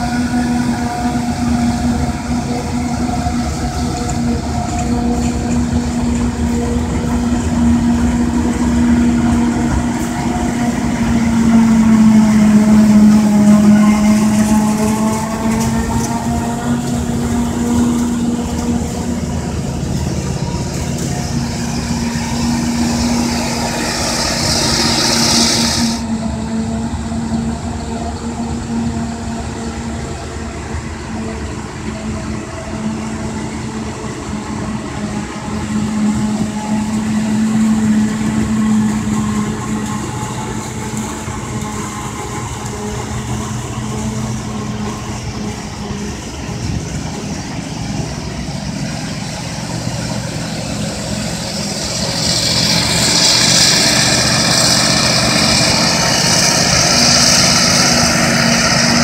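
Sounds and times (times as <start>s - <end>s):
heavy machinery droning: 0.0s - 59.0s
machinery whine: 0.0s - 59.0s
high hiss: 21.5s - 26.1s.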